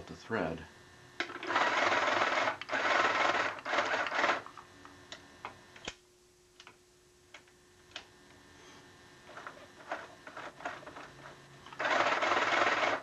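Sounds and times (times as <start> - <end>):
electric sewing machine running: 1.2 - 4.6, 11.7 - 13.0.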